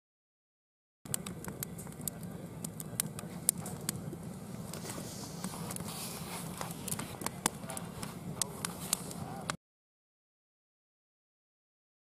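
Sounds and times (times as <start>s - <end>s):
campfire crackling and popping: 1.1s - 9.6s.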